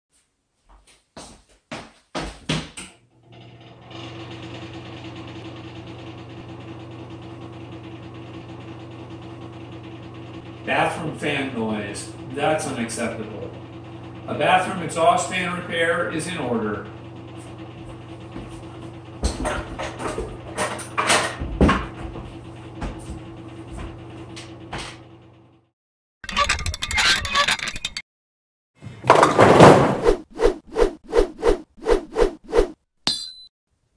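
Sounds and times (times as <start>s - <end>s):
exhaust fan humming and buzzing: 3.3s - 25.7s
wooden stepladder knocks: 19.2s - 23.2s.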